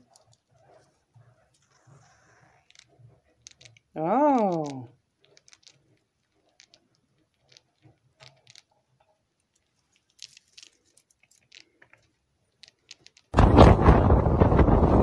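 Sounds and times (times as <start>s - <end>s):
rat chewing crunches: 0.0s - 13.4s
wind buffeting microphone: 13.4s - 15.0s.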